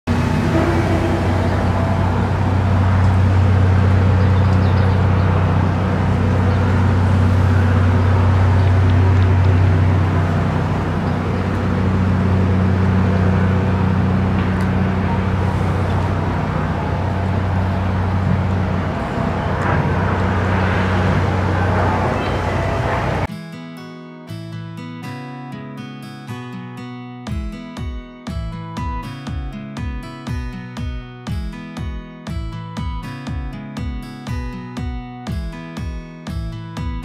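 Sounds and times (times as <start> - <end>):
engine drone: 0.0 - 23.3.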